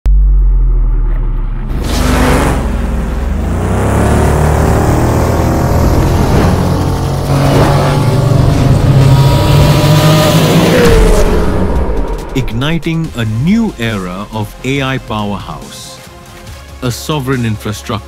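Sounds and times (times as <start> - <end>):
engine whine rising in pitch: 0.0 - 13.0
deep steady drone: 0.0 - 14.6.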